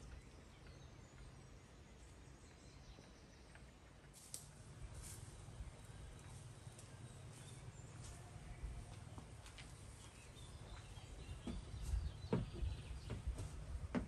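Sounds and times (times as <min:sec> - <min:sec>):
birds calling: 0:00.0 - 0:14.0
footsteps on wooden steps: 0:08.8 - 0:14.0.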